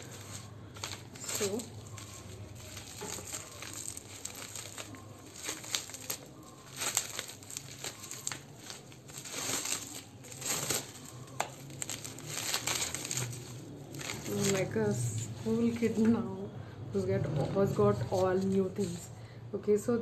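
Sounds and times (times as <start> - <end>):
bubble wrap crinkling: 0.0 - 16.3, 17.6 - 19.3.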